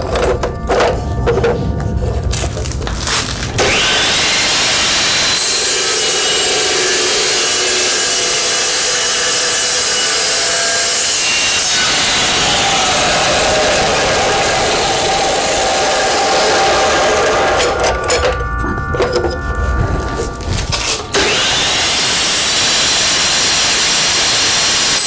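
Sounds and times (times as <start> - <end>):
chop saw cutting steel: 3.4 - 18.5, 20.7 - 25.0.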